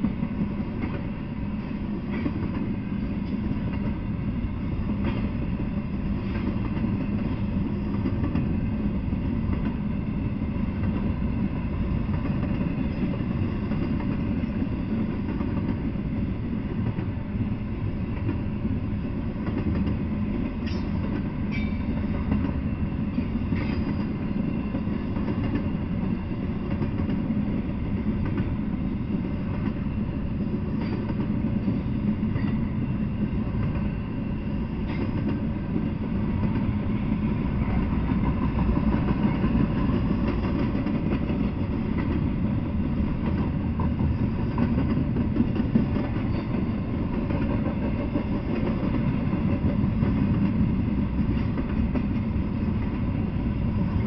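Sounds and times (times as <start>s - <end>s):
train wheels rumbling on rail: 0.0s - 54.0s.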